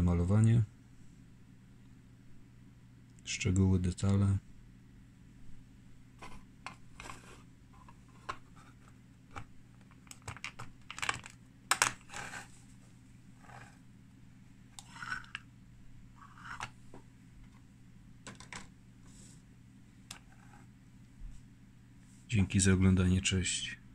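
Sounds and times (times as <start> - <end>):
plastic figurine clicking and scraping: 6.2 - 12.5, 14.8 - 15.4, 16.2 - 16.8.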